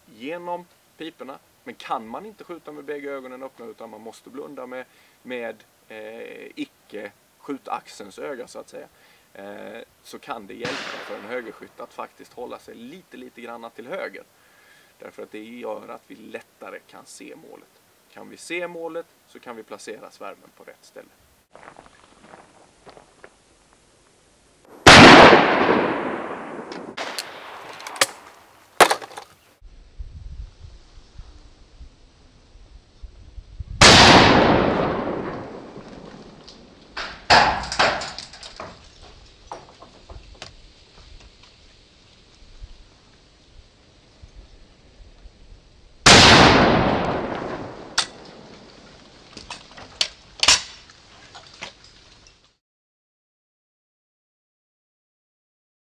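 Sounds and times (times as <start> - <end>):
shotgun shot with echo: 10.6 - 11.5, 24.8 - 28.2, 33.8 - 35.8, 46.1 - 48.0
sharp clicks and knocks: 36.4 - 40.6.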